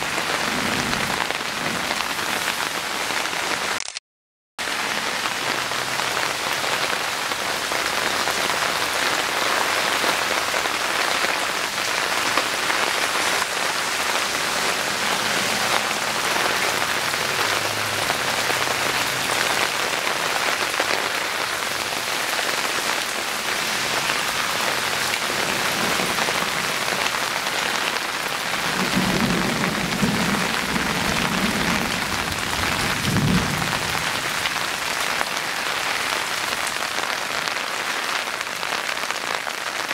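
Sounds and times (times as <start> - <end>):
heavy rain hissing: 0.0 - 3.8, 4.6 - 39.9.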